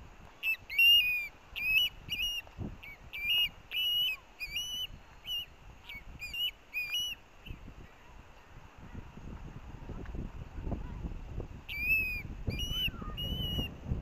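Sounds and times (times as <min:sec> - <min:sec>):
bird chick whistled begging calls: 0:00.4 - 0:07.6, 0:11.7 - 0:13.8.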